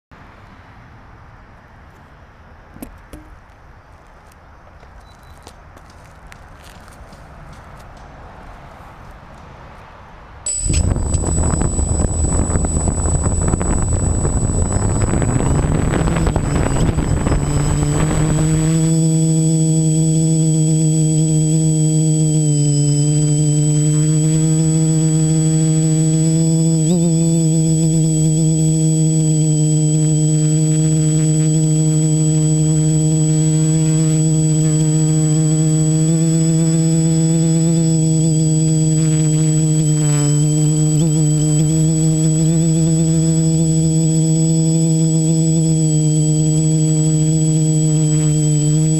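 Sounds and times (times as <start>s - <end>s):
drone propellers humming: 10.5s - 48.9s
thin high whine: 10.5s - 48.9s.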